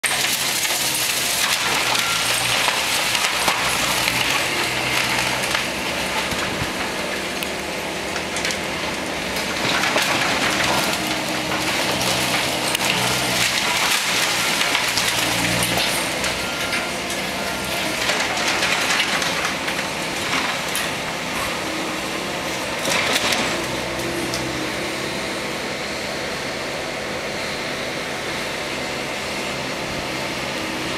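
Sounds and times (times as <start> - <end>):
debris crunching and crackling: 0.0 - 24.6
demolition machine engine humming: 0.0 - 30.9.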